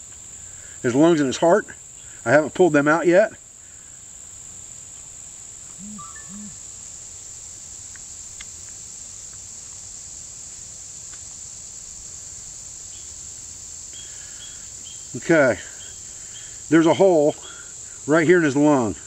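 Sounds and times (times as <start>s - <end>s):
insect chorus droning: 0.0s - 19.0s.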